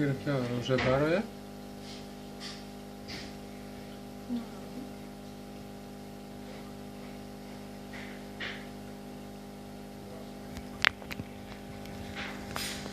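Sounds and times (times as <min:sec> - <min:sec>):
aquarium filter pump humming: 0:00.0 - 0:12.9
sharp knocks: 0:07.9 - 0:08.7.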